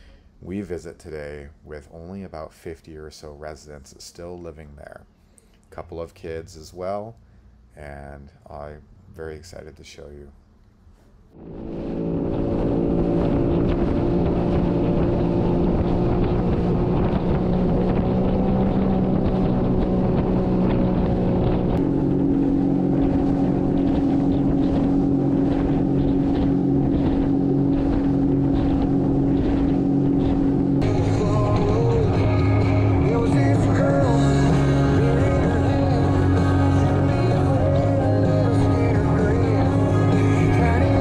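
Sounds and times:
wind buffeting microphone: 11.4 - 32.2
watercraft engine running: 11.4 - 41.0.

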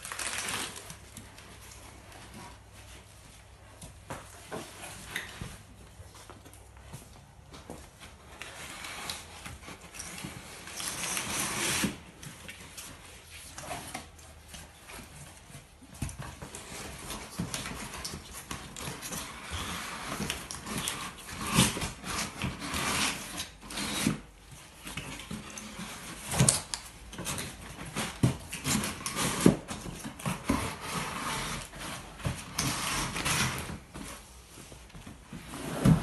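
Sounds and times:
cardboard scraping rush: 35.2 - 36.0.

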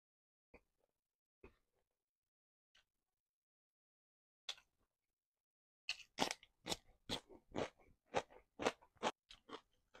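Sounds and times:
crunchy chewing: 5.9 - 10.0.

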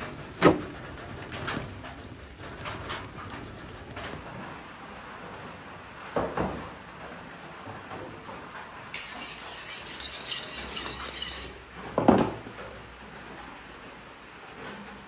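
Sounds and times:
knife blade metallic scrape: 9.0 - 11.6.

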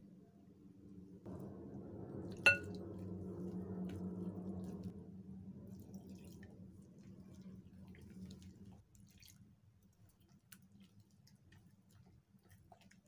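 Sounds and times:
water pouring into a bowl: 5.6 - 9.4.

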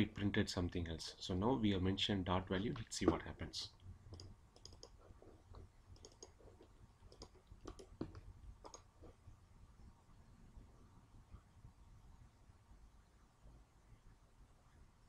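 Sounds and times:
room hiss: 0.0 - 15.0
computer mouse clicks: 4.1 - 9.2.

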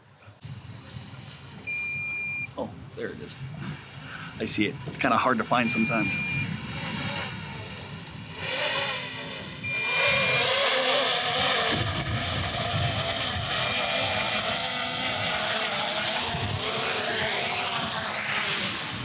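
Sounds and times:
drone propellers whining: 0.4 - 19.0
short high beeps: 1.7 - 2.5, 5.6 - 6.5, 9.6 - 10.6.

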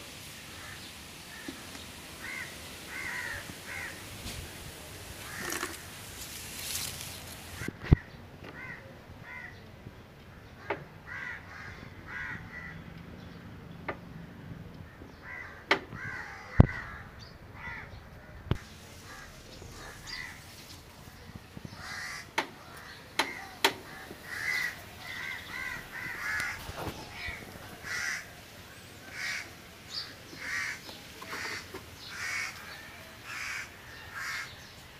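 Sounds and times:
crows cawing: 0.5 - 4.1, 5.2 - 5.9, 7.6 - 9.6, 10.6 - 12.8, 14.8 - 18.0, 19.0 - 20.5, 21.7 - 28.4, 29.0 - 34.6.

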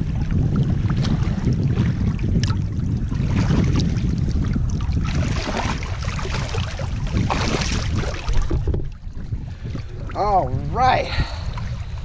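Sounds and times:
small waves lapping: 0.0 - 12.0
water splashing from wading: 0.0 - 12.0
wind on microphone: 0.0 - 12.0.

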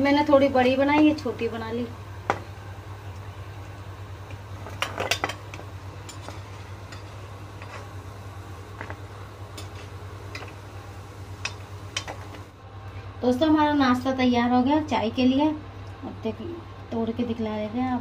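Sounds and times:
steady low hum: 0.0 - 18.0
metal spoon scraping wok: 6.1 - 8.0.

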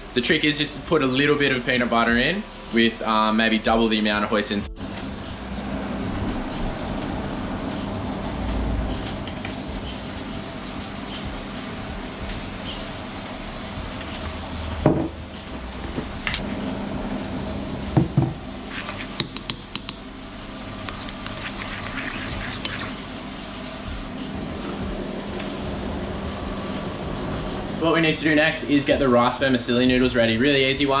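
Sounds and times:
food sizzling in frying pan: 0.0 - 27.7
sauce stirring scrape: 18.7 - 19.2, 20.8 - 23.1.

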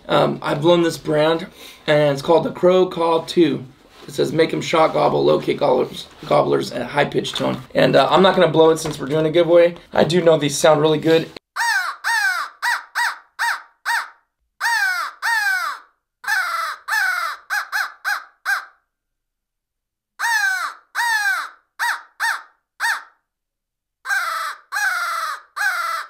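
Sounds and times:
crow call harsh caws: 11.6 - 18.8, 20.2 - 23.2, 24.1 - 26.0.

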